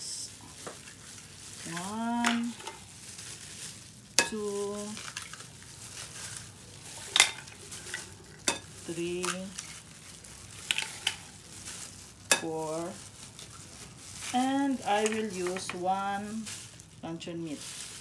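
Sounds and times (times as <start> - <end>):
eggs cracking against bowl rim: 6.9 - 9.8, 10.4 - 11.4.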